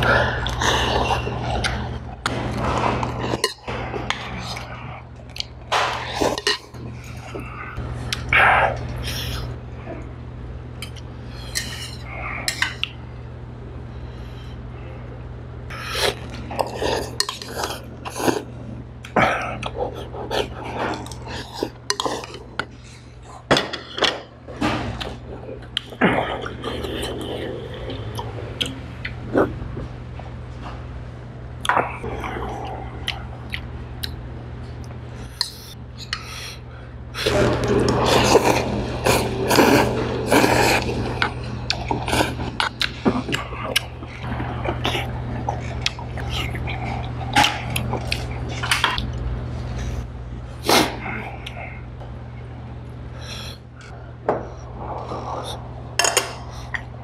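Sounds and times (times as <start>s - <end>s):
slurping and chewing: 0.0s - 9.6s, 15.7s - 23.5s, 37.2s - 51.7s
steady low hum: 0.0s - 57.0s
noodles being slurped: 37.2s - 49.8s.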